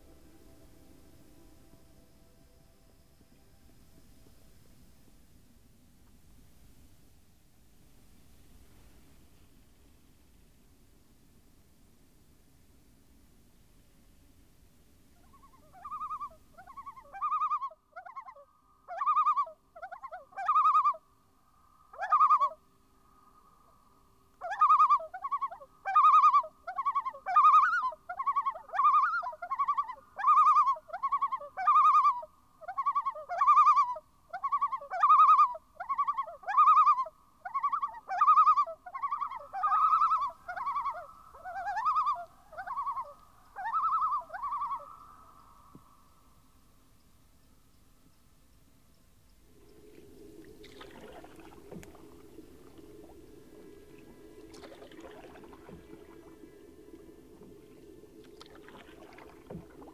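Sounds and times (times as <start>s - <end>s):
loons quavering calls: 15.2s - 21.0s, 21.9s - 22.6s, 24.4s - 45.8s, 49.6s - 59.9s.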